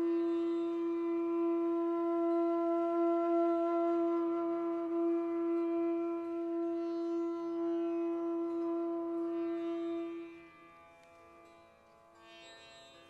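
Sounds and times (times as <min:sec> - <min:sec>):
droning music note: 0:00.0 - 0:10.7.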